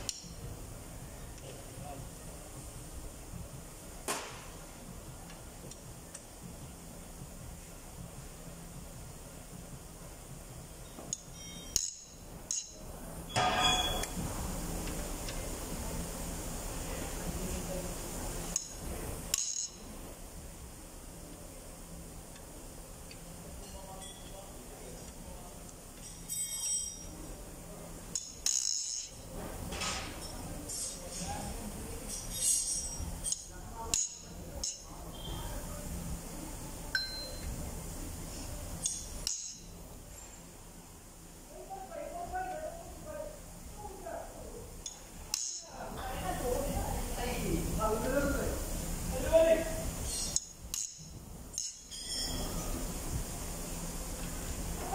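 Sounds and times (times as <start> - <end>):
low steady hum: 0.0 - 54.9
steel tools clinking on engine: 11.1 - 14.1, 26.0 - 27.2, 51.6 - 52.6.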